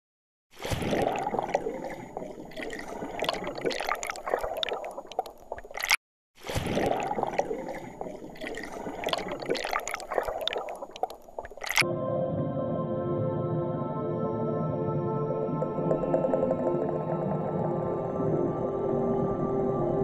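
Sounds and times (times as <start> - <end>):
water gurgling in a glass bowl: 0.6 - 5.9, 6.5 - 11.8, 15.4 - 18.6.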